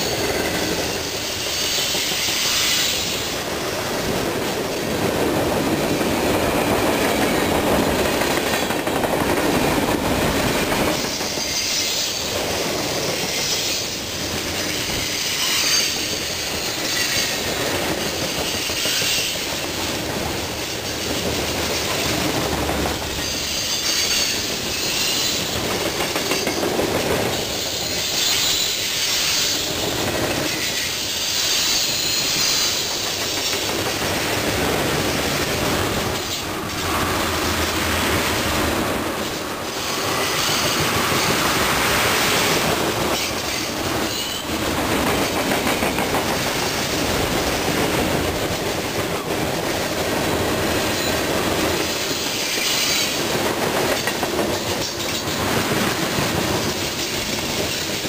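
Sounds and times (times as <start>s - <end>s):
freight train wheels rumbling on rails: 0.0s - 58.0s
high-pitched wheel squeals: 23.2s - 25.6s, 27.3s - 33.5s.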